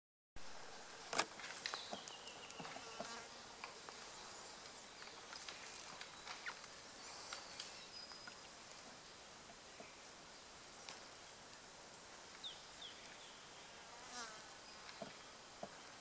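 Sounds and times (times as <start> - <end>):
faint insect buzz: 0.5 - 5.0, 5.6 - 16.0
twigs snapping and rustling: 1.1 - 2.8, 4.6 - 7.8.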